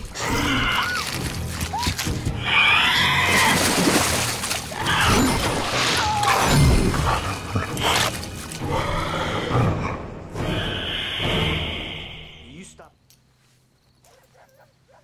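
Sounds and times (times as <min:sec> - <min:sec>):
film music: 0:00.0 - 0:13.4
shrieking creature cries: 0:02.4 - 0:03.7
heavy water splashing: 0:03.2 - 0:08.6.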